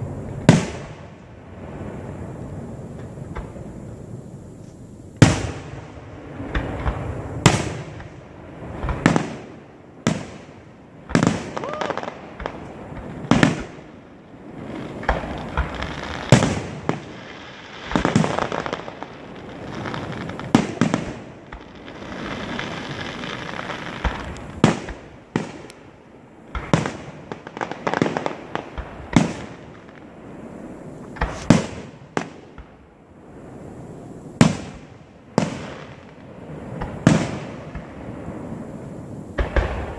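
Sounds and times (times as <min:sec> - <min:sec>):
firework crackling: 0:00.0 - 0:39.9
firework shells bursting: 0:14.6 - 0:25.8, 0:31.0 - 0:32.8.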